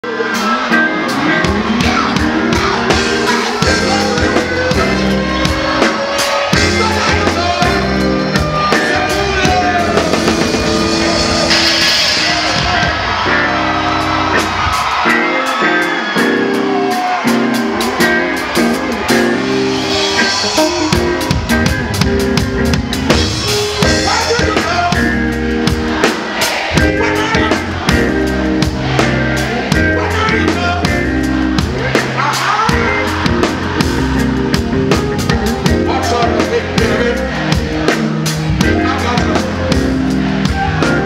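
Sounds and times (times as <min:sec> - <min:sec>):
person singing: 0:00.0 - 0:13.0, 0:26.4 - 0:41.0
live reggae band: 0:00.0 - 0:41.0.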